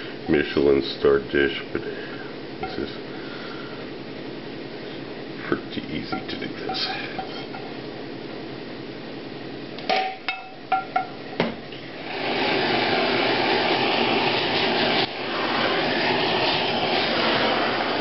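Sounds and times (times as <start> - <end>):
blowtorch flame hissing: 11.8 - 18.0.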